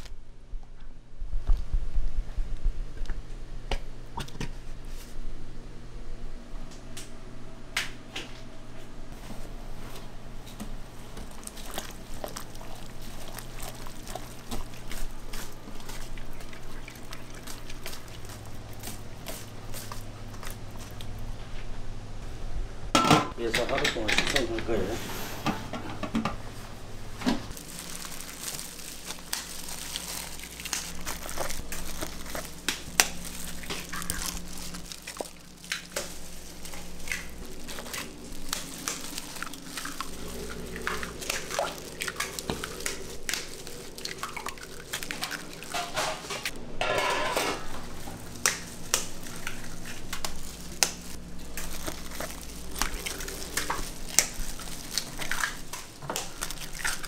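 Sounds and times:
low steady hum: 0:00.0 - 0:57.0
eggs cracking against metal pans: 0:23.0 - 0:24.7, 0:27.5 - 0:57.0
egg contents dripping: 0:27.5 - 0:45.8, 0:48.2 - 0:57.0.

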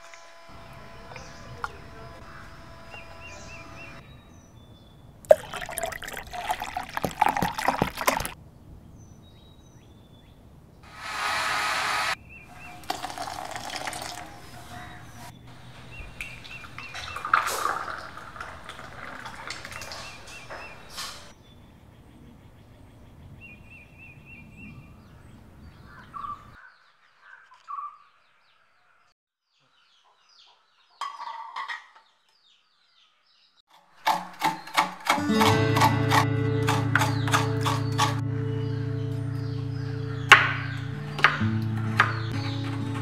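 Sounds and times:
kitchen blender running: 0:00.0 - 0:04.0, 0:10.9 - 0:12.2
birds chirping faintly: 0:00.0 - 0:10.9, 0:12.1 - 0:33.6, 0:36.0 - 0:43.0
liquid pouring and splashing: 0:05.3 - 0:08.4, 0:12.8 - 0:14.4, 0:16.4 - 0:20.5.

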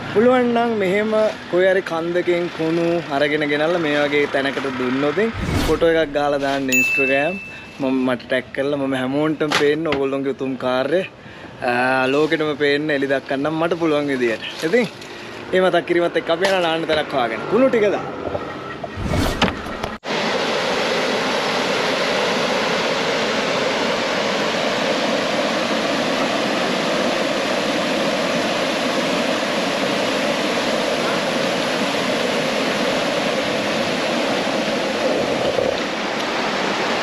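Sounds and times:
stream rushing over rocks: 0:20.0 - 0:37.0.

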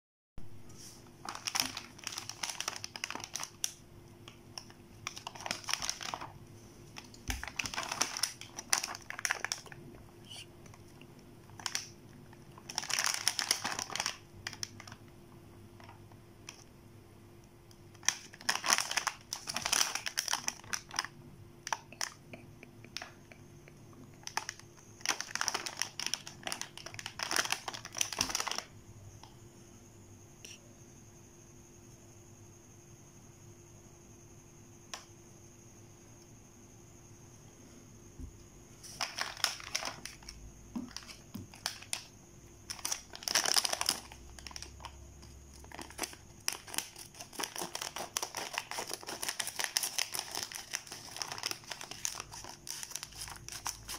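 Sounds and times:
plastic food packets crinkling: 0:01.1 - 0:15.1, 0:15.8 - 0:16.6, 0:17.9 - 0:22.3, 0:24.0 - 0:28.7, 0:38.8 - 0:53.9.

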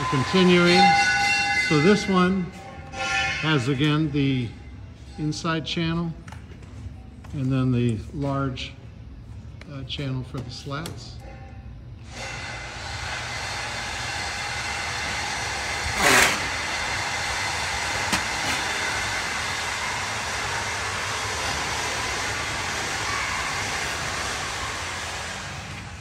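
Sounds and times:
loud steady hissing: 0:12.1 - 0:26.0.

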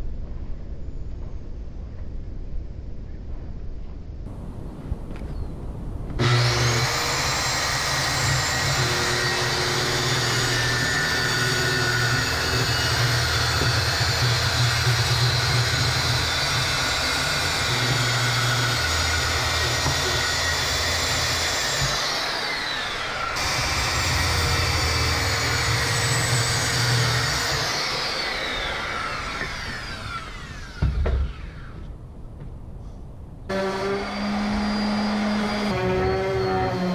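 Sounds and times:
circular saw cutting board: 0:06.0 - 0:31.9, 0:33.5 - 0:36.9
thump: 0:30.8 - 0:31.4.

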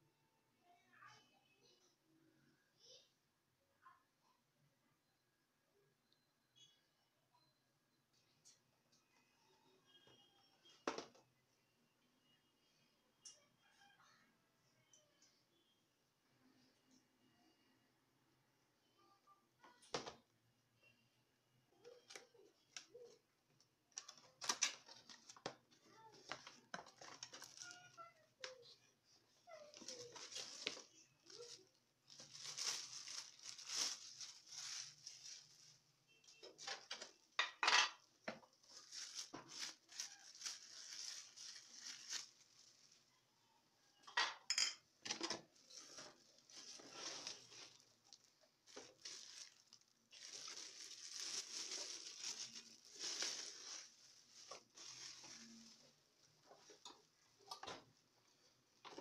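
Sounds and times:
plastic wrapping crinkling: 0:24.0 - 0:28.6, 0:29.5 - 0:37.0, 0:38.4 - 0:43.2, 0:45.5 - 0:57.5
cardboard rustling: 0:45.6 - 0:55.8.

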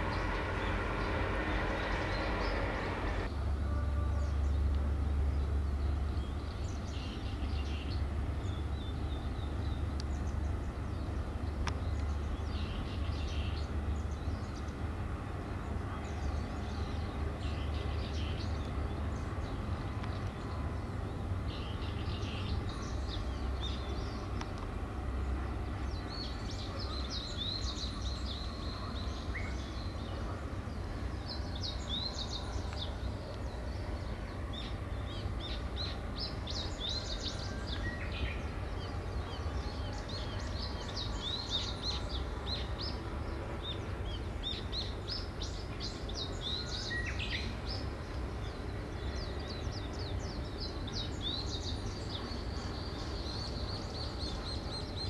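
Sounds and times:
small birds chirping: 0:00.0 - 0:55.0
steady low rumble: 0:00.0 - 0:55.0.

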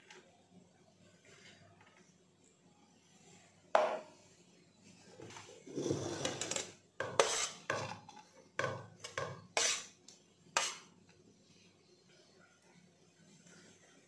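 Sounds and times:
steel plate scraping bowl rim: 0:05.7 - 0:07.7, 0:09.6 - 0:09.9.

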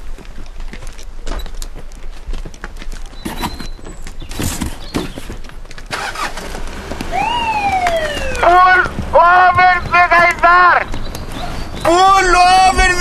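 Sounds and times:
clops and knocks: 0:00.0 - 0:13.0
police siren: 0:07.0 - 0:09.5.

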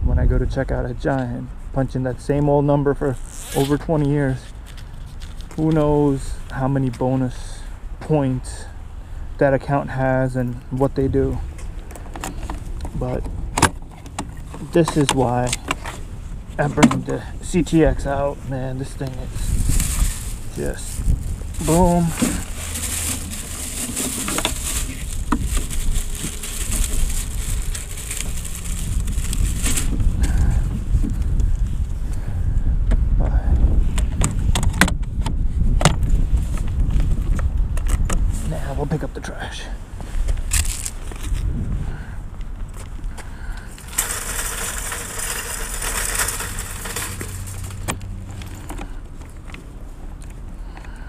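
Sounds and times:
steady low rumble: 0:00.0 - 0:03.2, 0:03.8 - 0:51.0
plastic bag crinkling: 0:19.5 - 0:30.0, 0:43.8 - 0:48.7.

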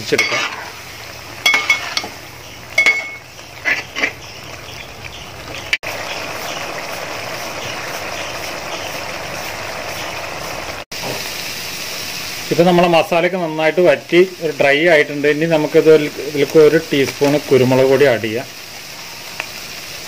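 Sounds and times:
metal spatula scraping a pot: 0:00.0 - 0:00.8, 0:01.4 - 0:02.2, 0:02.8 - 0:04.4.

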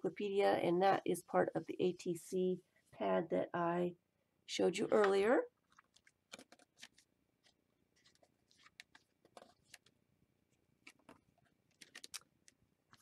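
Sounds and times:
paper pages rustling: 0:05.7 - 0:10.0, 0:10.8 - 0:13.0.

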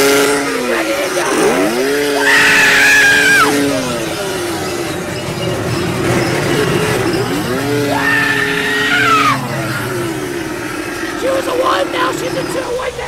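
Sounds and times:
electric chainsaw motor whine: 0:00.0 - 0:13.0.

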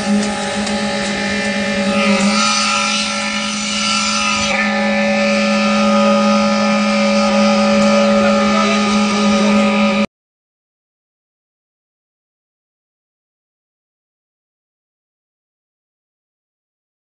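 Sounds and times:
concrete pump machine humming: 0:00.0 - 0:10.1.

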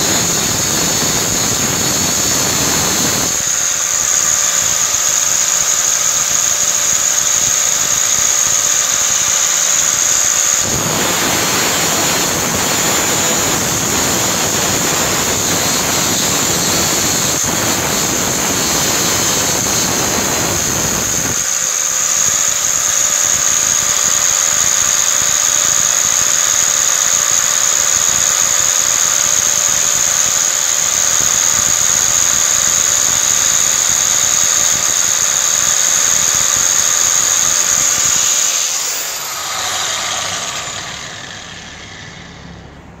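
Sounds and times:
angle grinder whining: 0:00.0 - 0:43.0
electrode grinding against disc: 0:31.0 - 0:42.6.

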